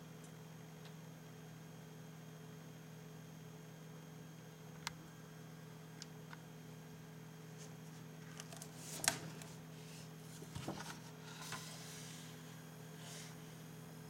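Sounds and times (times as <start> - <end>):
faint steady hum: 0.0 - 14.0
pages rustling: 8.3 - 9.6, 10.3 - 12.0.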